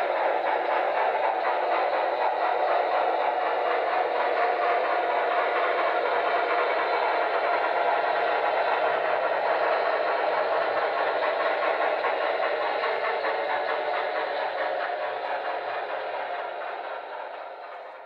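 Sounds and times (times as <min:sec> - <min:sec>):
freight cars rolling on track: 0:00.0 - 0:18.0
model steam locomotive sound: 0:00.0 - 0:18.0.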